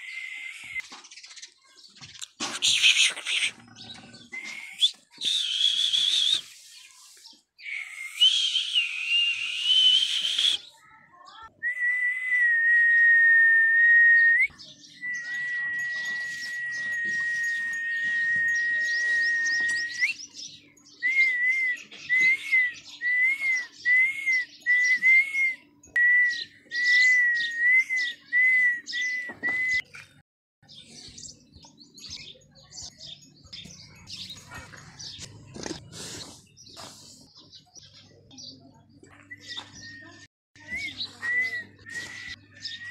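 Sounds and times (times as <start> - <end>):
short wavering whistled notes: 15.1 - 20.2.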